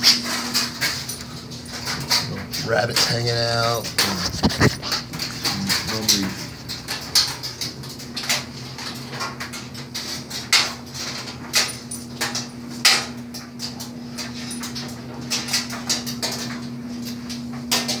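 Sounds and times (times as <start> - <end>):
steady low hum: 0.0 - 18.0
dog sniffing: 4.0 - 5.6.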